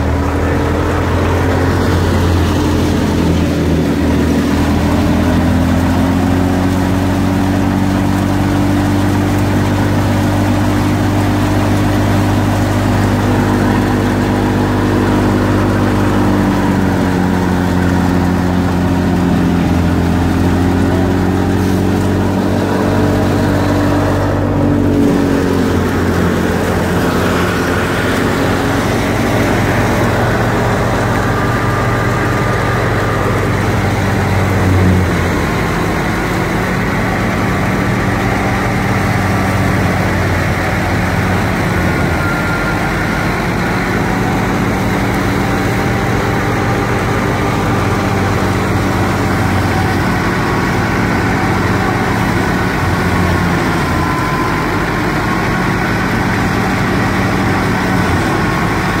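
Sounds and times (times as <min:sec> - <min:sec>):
tractor engine and thresher drone: 0:00.0 - 0:59.0.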